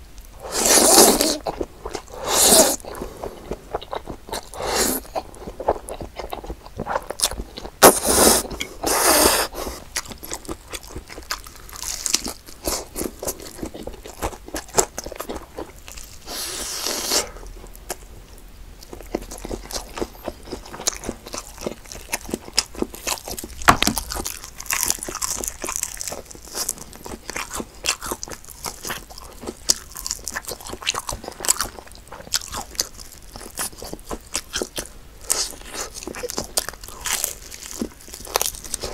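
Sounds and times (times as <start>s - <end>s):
slurping spaghetti: 0.4s - 5.2s, 7.8s - 9.9s, 16.2s - 17.4s
crunchy chewing of chicken wings: 0.4s - 18.1s, 18.8s - 38.9s.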